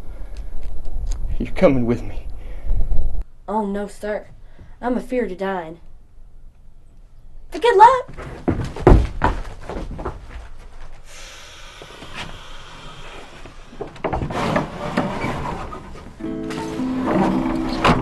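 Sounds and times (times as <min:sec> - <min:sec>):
footsteps on wooden boardwalk: 0:08.1 - 0:11.0
rustling: 0:08.1 - 0:11.1
steady hiss: 0:11.0 - 0:14.2.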